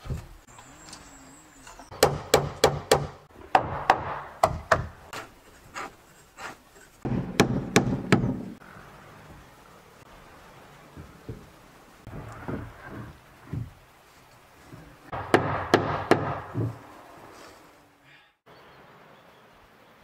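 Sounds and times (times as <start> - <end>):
hammer striking wooden planks: 1.9 - 5.3, 7.0 - 8.6, 15.1 - 16.8.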